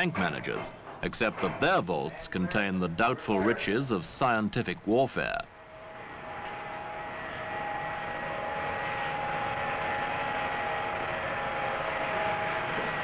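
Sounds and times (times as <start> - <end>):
machinery drone: 5.4 - 13.0
whining tones: 5.4 - 13.0.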